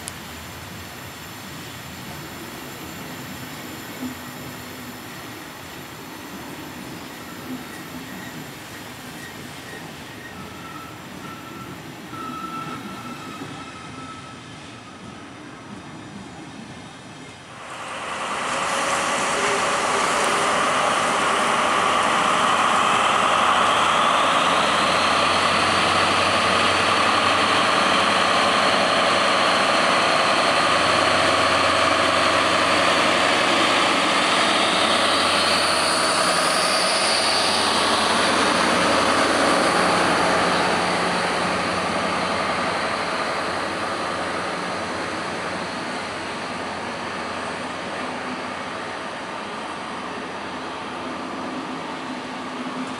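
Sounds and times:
rumble of coaches rolling by: 0.2s - 52.9s
diesel locomotive engine running: 16.7s - 52.9s.

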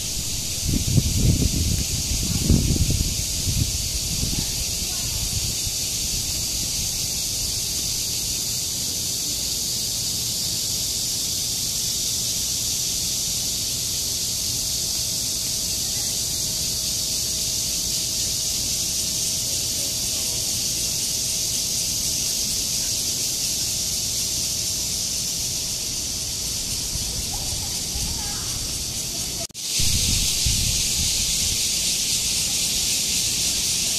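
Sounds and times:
cicadas buzzing in chorus: 0.0s - 33.9s.

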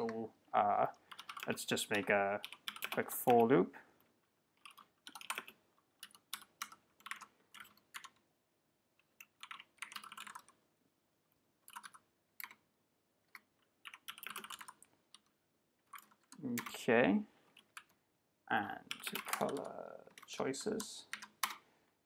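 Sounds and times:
computer keyboard typing: 0.9s - 3.5s, 4.5s - 8.3s, 9.0s - 10.6s, 11.6s - 16.8s, 17.5s - 18.0s, 18.8s - 21.6s.

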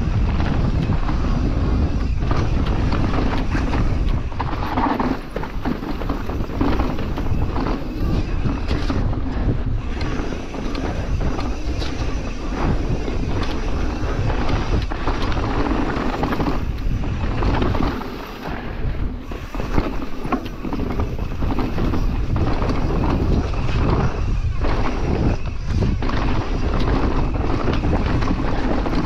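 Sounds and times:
bike rattling: 0.0s - 29.0s
tyres rolling on dirt: 0.0s - 29.0s
wind rushing over microphone: 0.0s - 29.0s.

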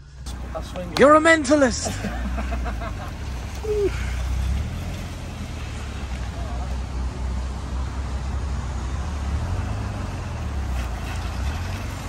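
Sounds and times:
car engine running steadily: 0.0s - 9.0s.

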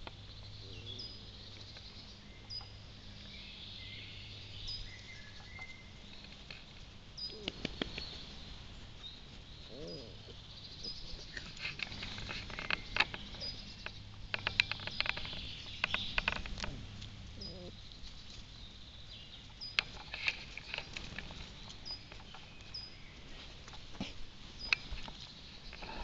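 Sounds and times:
bird chirping: 0.0s - 26.0s
puppy mouthing dry grass: 5.6s - 26.0s.

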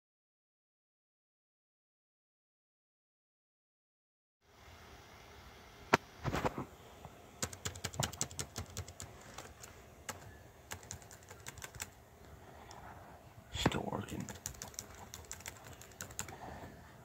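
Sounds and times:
laptop keyboard keys clicking: 7.4s - 12.0s, 14.2s - 16.4s.

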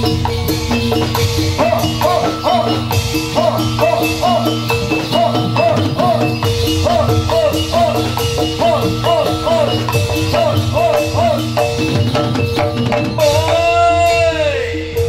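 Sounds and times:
drum strokes: 0.0s - 15.0s
metallophones playing pattern: 0.0s - 15.0s.

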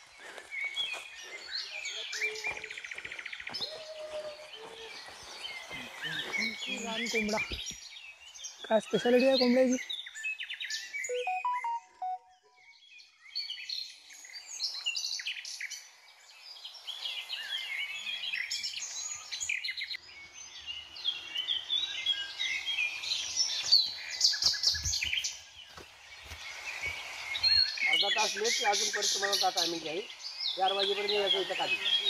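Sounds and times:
footsteps on dry leaves: 0.0s - 7.7s, 23.2s - 28.3s
birds chirping and whistling: 0.0s - 15.8s, 16.7s - 32.0s.

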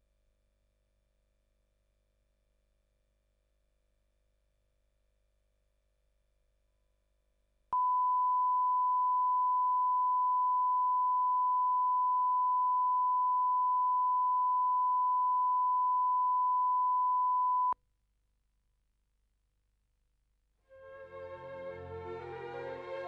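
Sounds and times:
steady pure tone beep: 7.8s - 17.8s.

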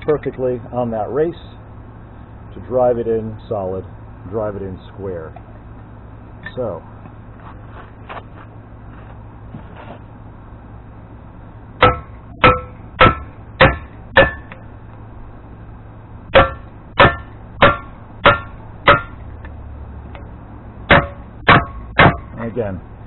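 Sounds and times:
hammer striking metal with ring: 11.8s - 14.7s, 16.3s - 19.3s, 20.9s - 22.4s.

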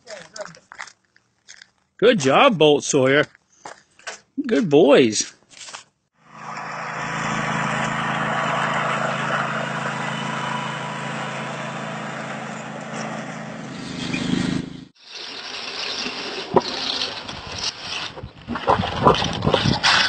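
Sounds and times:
truck engine running: 6.2s - 15.0s
wind noise: 16.5s - 20.0s.

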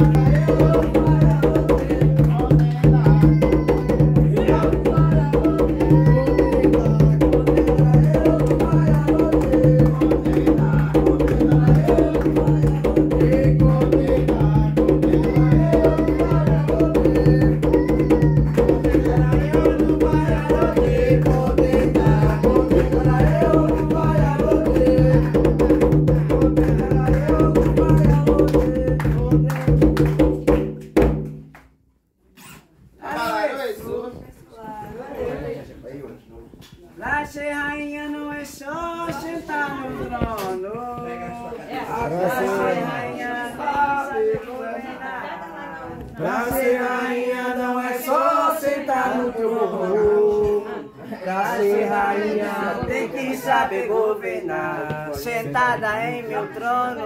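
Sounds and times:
group singing a chant: 0.0s - 30.4s, 37.0s - 57.0s
drums playing ritual rhythm: 0.0s - 31.5s.

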